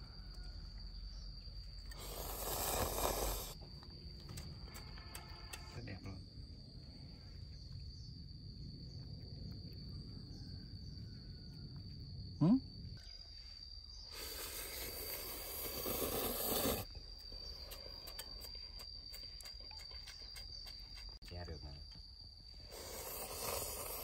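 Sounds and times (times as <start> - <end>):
high insect trill: 0.0 - 24.0
man slurping noodles: 1.9 - 3.6, 14.2 - 16.9, 22.8 - 24.0.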